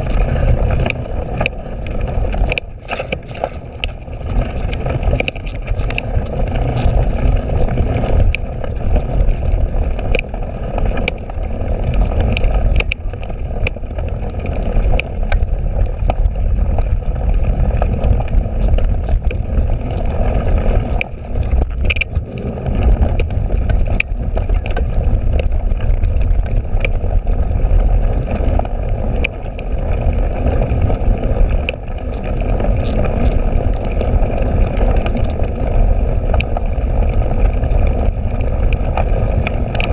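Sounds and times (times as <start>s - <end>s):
bike clicking and rattling: 0.0s - 39.9s
wind on microphone: 0.0s - 39.9s.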